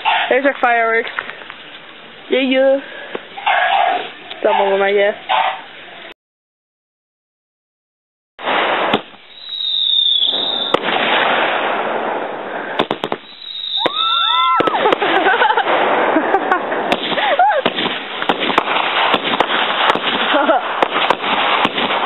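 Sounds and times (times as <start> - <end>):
fireworks crackling and popping: 0.0 - 4.9, 8.4 - 22.0
fireworks hissing spray: 8.4 - 11.8, 12.4 - 21.9.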